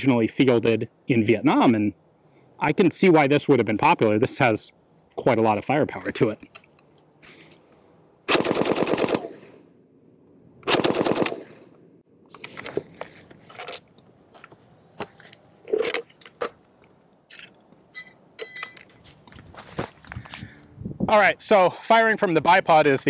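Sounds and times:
machine gun bursts: 0:08.3 - 0:09.5, 0:10.7 - 0:11.6.

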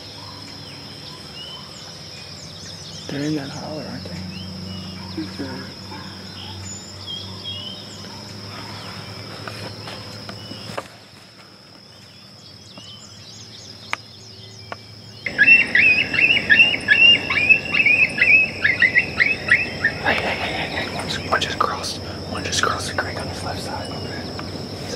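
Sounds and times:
coyotes yipping and howling: 0:00.0 - 0:10.8, 0:12.3 - 0:24.9
high insect drone: 0:00.0 - 0:24.9
faint bird chirps: 0:11.8 - 0:24.9.

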